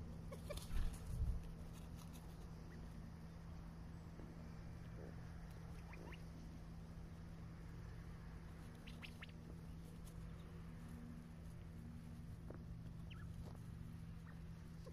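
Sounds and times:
steady low hum: 0.0s - 14.9s
quail peeping: 0.3s - 1.2s, 2.2s - 3.0s, 4.8s - 6.9s, 8.5s - 11.7s, 12.4s - 14.9s.

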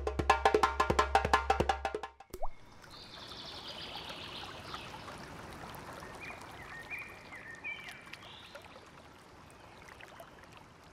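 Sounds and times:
stream trickling: 2.3s - 10.9s.

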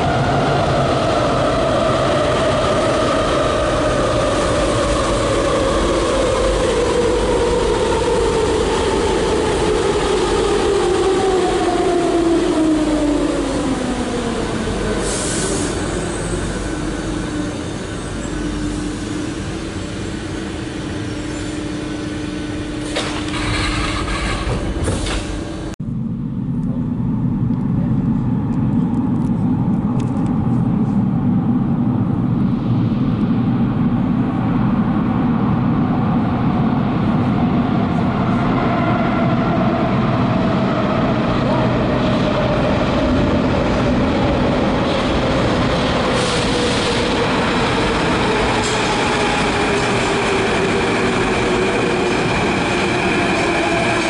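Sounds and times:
low rumble from tunnel: 0.0s - 54.0s.

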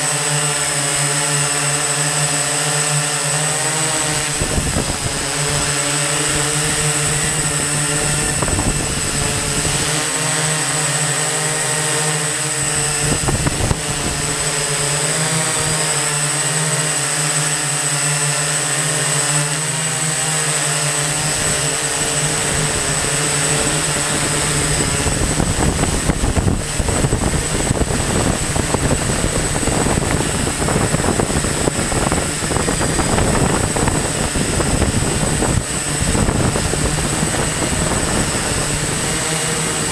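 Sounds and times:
drone propellers whirring: 0.0s - 39.9s.

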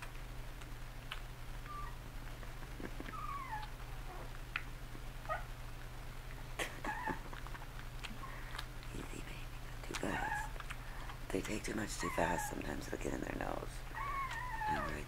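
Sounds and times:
steady low hum: 0.0s - 15.0s
puppy whining: 1.1s - 5.6s, 6.6s - 8.8s, 9.9s - 15.0s.

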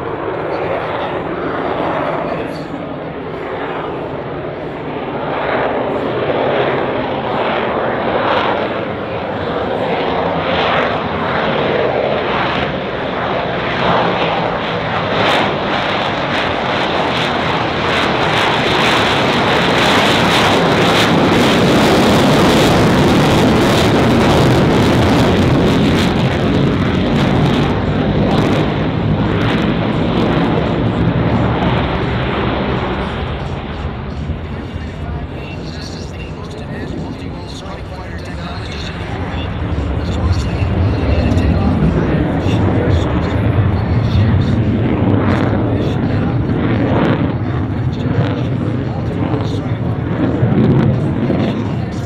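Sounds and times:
jet engine roaring: 0.0s - 52.0s.

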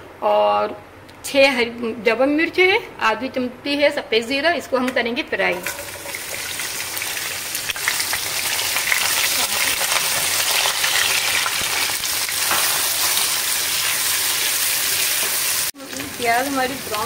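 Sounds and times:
food sizzling in hot oil: 5.5s - 17.0s.

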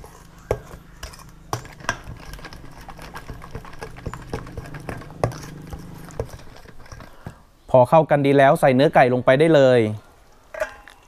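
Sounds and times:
metal ladle clinking against bowl: 10.5s - 11.0s.

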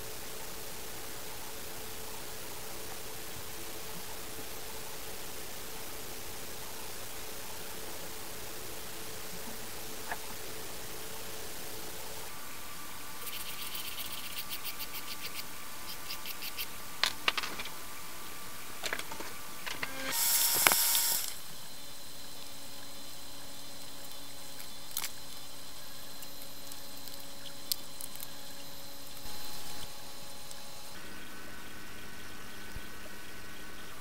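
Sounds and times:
steady hiss: 0.0s - 34.0s
fast faint ticking: 13.2s - 17.4s
plastic parts clicking: 17.0s - 17.8s, 18.8s - 20.0s.

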